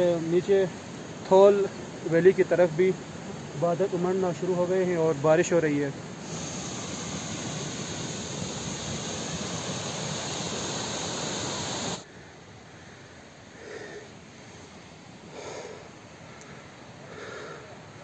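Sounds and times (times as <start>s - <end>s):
wind and rain on microphone: 0.0s - 12.1s
steady hiss: 0.0s - 18.0s
faint soft breaths: 11.9s - 18.0s.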